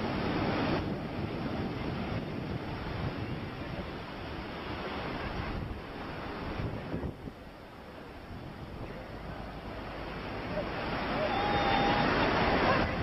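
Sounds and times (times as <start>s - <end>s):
ocean surf breaking: 0.0s - 13.0s
wind buffeting microphone: 0.0s - 13.0s.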